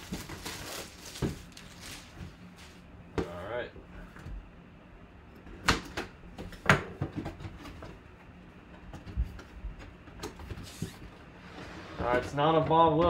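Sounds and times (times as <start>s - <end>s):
cardboard and paper rustling: 0.0s - 2.9s.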